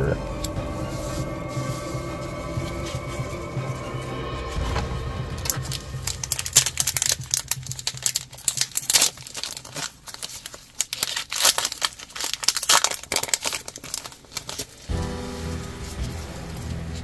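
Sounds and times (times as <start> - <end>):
foil wrapper crinkling: 5.4 - 17.0.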